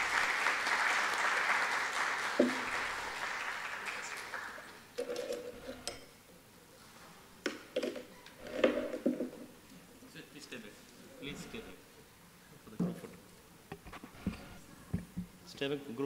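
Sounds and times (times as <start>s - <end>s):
hall applause: 0.0s - 4.9s.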